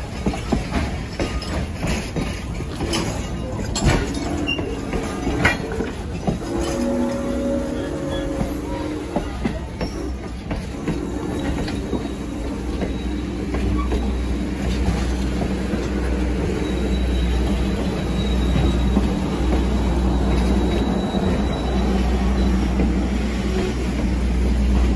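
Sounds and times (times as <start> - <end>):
train wheels rumbling: 0.0 - 24.9
wheels clicking over rail joints: 0.0 - 24.9
thin wheel squeal: 16.5 - 22.8.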